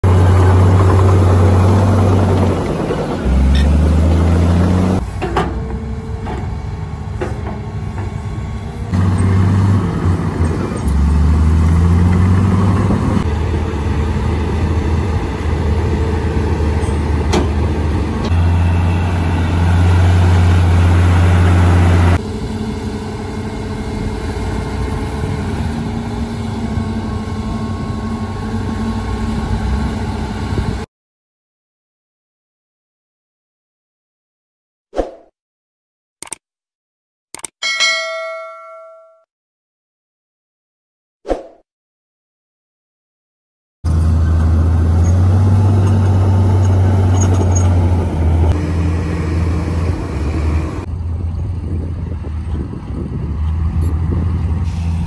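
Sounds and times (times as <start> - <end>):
diesel engines revving under load: 0.0 - 30.9, 43.9 - 55.0.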